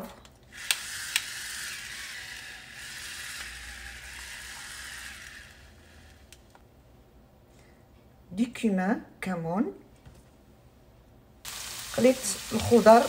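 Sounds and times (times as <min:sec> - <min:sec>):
electric pepper mill grinding: 0:00.5 - 0:06.6.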